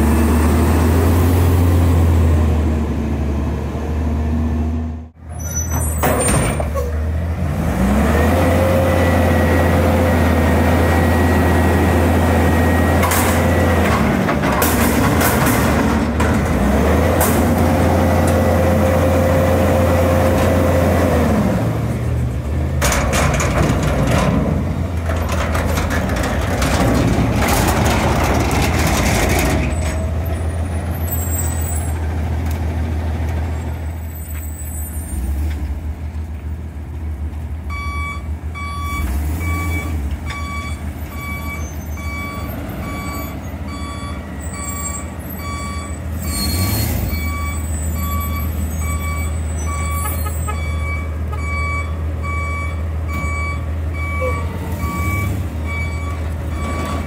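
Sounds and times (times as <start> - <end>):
reversing alarm beeps: 37.7 - 46.4, 47.1 - 57.0.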